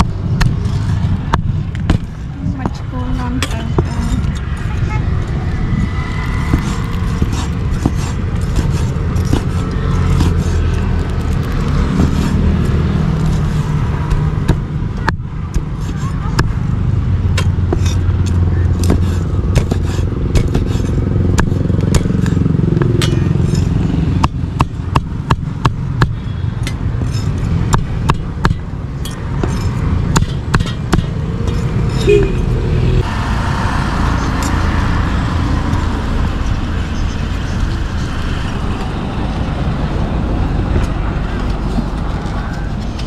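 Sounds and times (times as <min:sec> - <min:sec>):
steady low rumble: 0:00.0 - 0:43.0
cleaver chopping on wooden board: 0:01.3 - 0:02.2, 0:06.4 - 0:10.6, 0:13.3 - 0:16.6, 0:17.3 - 0:26.2, 0:27.2 - 0:28.7, 0:29.4 - 0:32.4.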